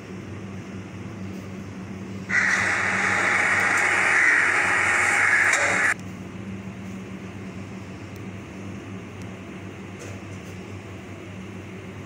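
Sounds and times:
oven humming: 0.0s - 12.0s
loud hiss: 2.3s - 6.0s.

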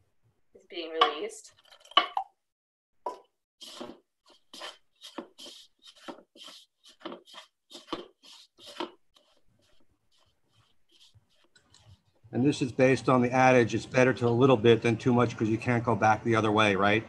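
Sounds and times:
paddle scraping dough in bowl: 3.6s - 12.4s.

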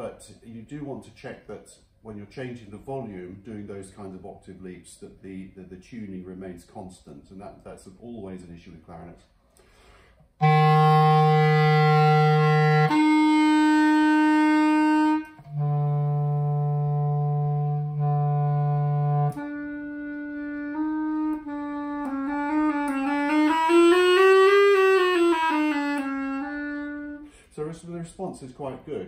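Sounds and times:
clarinet playing held notes: 10.4s - 27.3s.

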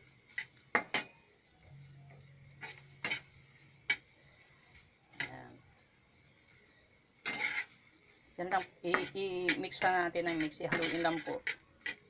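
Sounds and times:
utensil clinking against pan: 8.9s - 12.0s.

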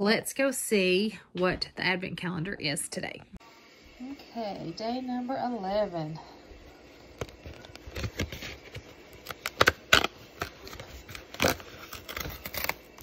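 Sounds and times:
cardboard tearing: 7.2s - 13.0s.

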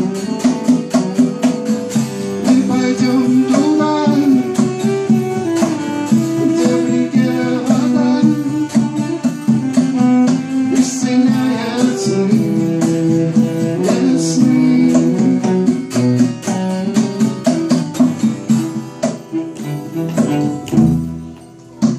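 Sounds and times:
guitar strummed rapidly: 0.0s - 21.9s
cello sustained notes: 19.3s - 21.5s.

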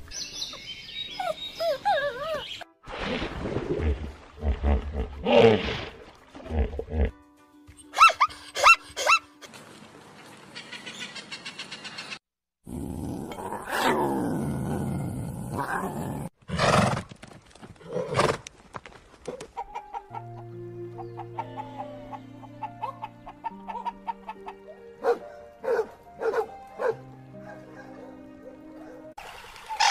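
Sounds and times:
soft background music: 19.6s - 29.2s.

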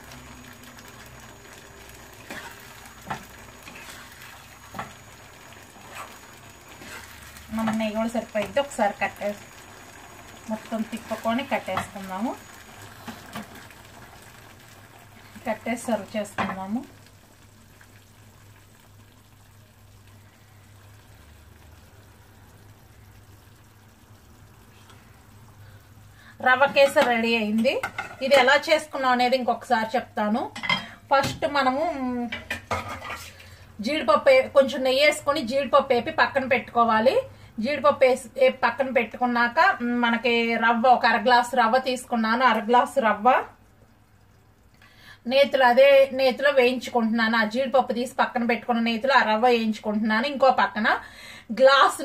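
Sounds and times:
soft sizzle in a pan: 0.0s - 52.0s
spatula scraping a pan: 2.2s - 4.9s, 5.8s - 7.8s, 32.7s - 33.4s.

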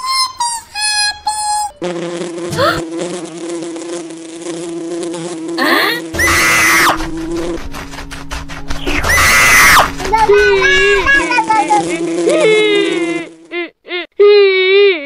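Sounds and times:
fly buzzing: 0.1s - 13.7s
loud shrill cry: 6.1s - 7.0s, 8.8s - 10.0s.

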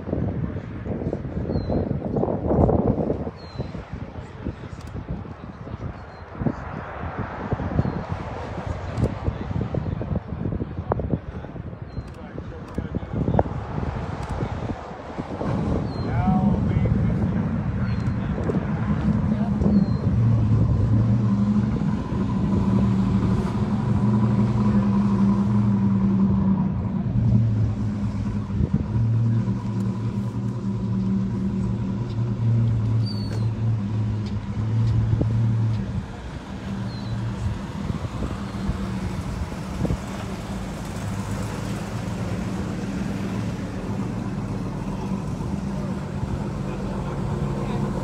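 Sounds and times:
car engine idling: 15.6s - 48.0s.

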